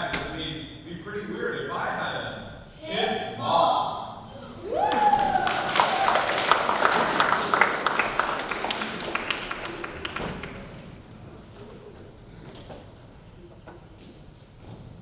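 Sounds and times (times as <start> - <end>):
person whooping: 4.3 - 6.6
audience clapping: 4.6 - 11.2.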